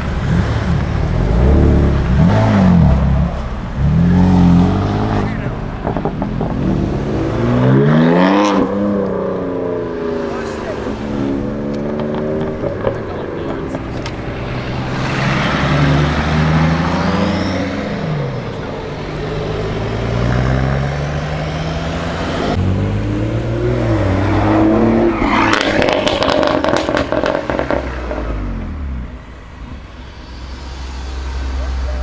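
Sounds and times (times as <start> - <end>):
car engines revving past: 0.0 - 32.0
exhaust crackles: 23.4 - 32.0.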